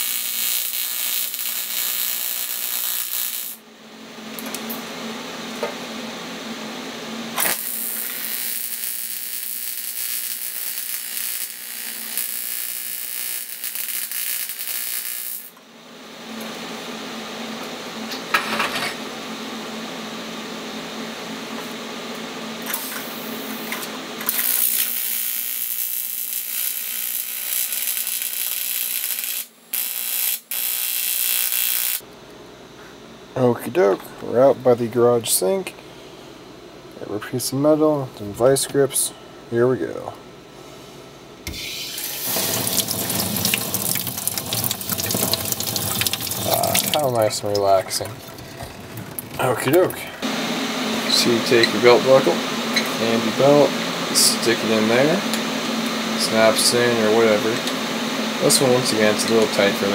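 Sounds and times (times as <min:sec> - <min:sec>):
welding arc buzzing and hissing: 0:00.0 - 0:03.7, 0:07.3 - 0:15.6, 0:22.6 - 0:32.1, 0:41.4 - 0:48.0, 0:48.8 - 0:59.9.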